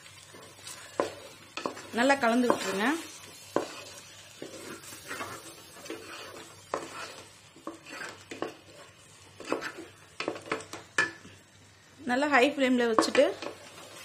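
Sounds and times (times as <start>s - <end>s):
faint sizzle: 0.0s - 14.0s
spatula scraping metal pot: 0.3s - 10.7s.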